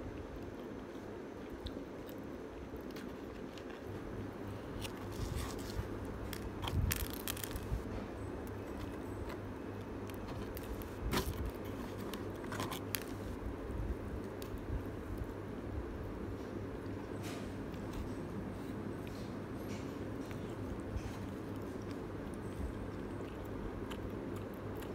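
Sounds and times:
pizza box crackling and rustling: 0:00.4 - 0:24.9
mouth chewing: 0:16.8 - 0:24.9.

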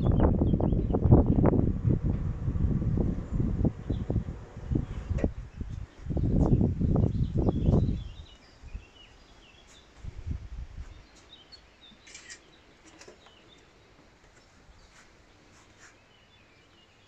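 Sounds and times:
low rumble: 0:00.0 - 0:08.2
small birds chirping: 0:02.9 - 0:17.0.

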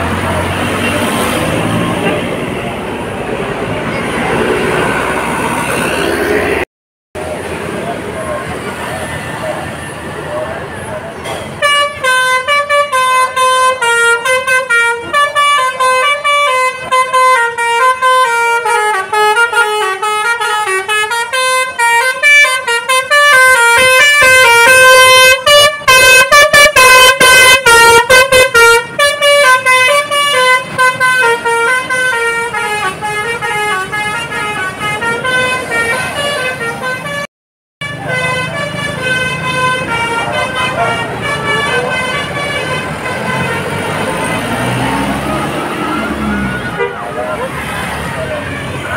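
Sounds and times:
bus horn playing melody: 0:11.6 - 0:45.6, 0:46.5 - 0:47.3.

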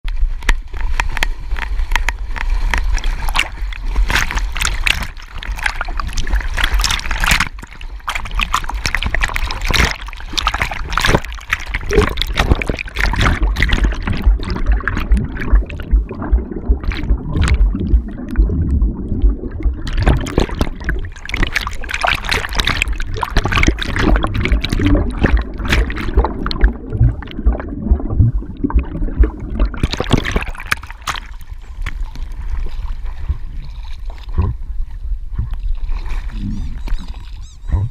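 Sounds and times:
water splashing and gurgling: 0:00.0 - 0:37.9
low rumble: 0:12.0 - 0:21.8, 0:22.7 - 0:29.9.

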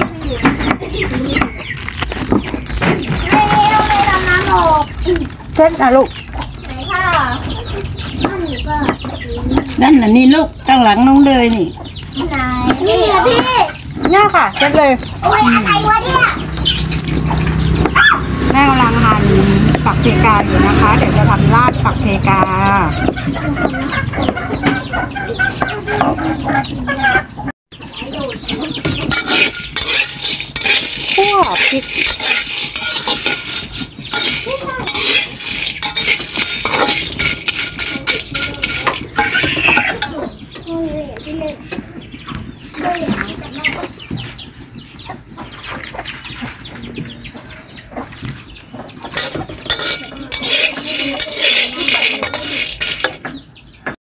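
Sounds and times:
hens clucking: 0:00.0 - 0:54.0
metal spatula scraping in wok: 0:28.7 - 0:40.8, 0:49.1 - 0:53.4.

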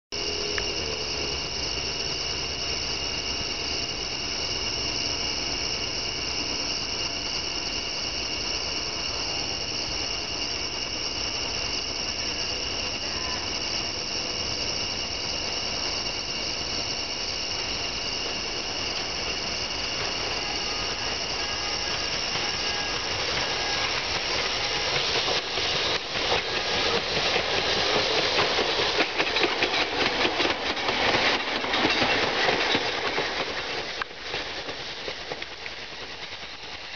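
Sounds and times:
night insect chorus: 0:00.2 - 0:36.9
streetcar wheels clattering on track: 0:17.9 - 0:36.9.

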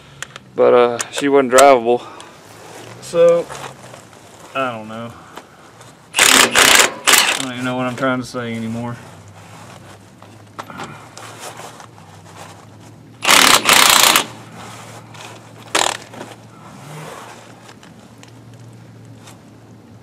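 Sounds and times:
faint steady hum: 0:00.0 - 0:20.0
impact wrench bursts: 0:06.1 - 0:07.6, 0:13.2 - 0:14.5, 0:15.7 - 0:16.2.

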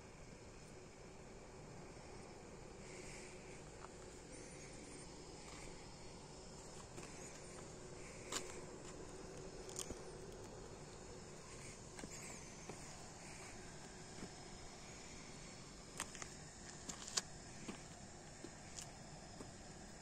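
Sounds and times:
low steady hiss: 0:00.0 - 0:20.0
faint chirping: 0:01.7 - 0:16.8.

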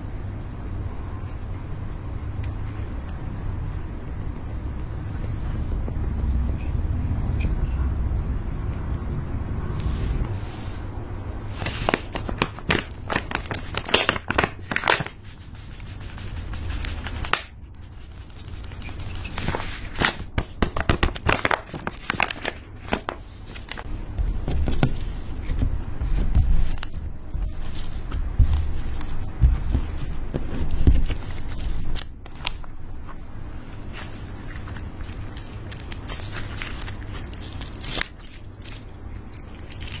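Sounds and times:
slime crackling and squishing: 0:11.5 - 0:40.0
plastic bag crinkling: 0:18.5 - 0:32.7.

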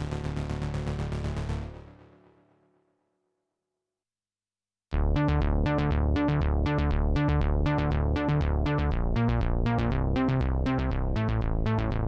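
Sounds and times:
low bass notes: 0:04.9 - 0:12.0.

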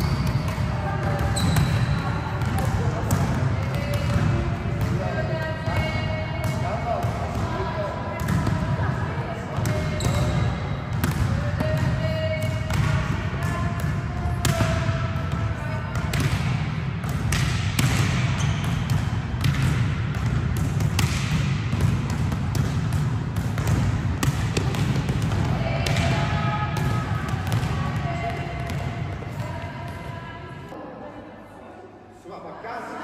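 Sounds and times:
volleyballs thudding on floor: 0:16.0 - 0:29.5.

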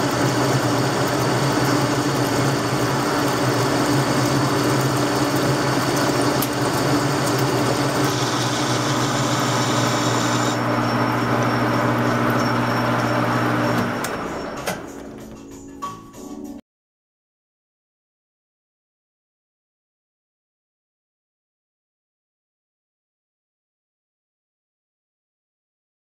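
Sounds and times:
lathe tool cutting hiss: 0:00.0 - 0:14.7
lathe motor hum: 0:00.0 - 0:15.1.

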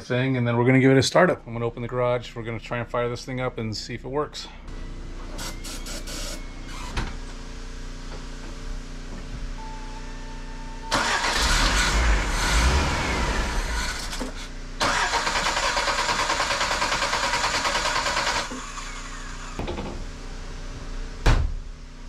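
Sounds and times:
car engine cranking: 0:10.9 - 0:19.6.

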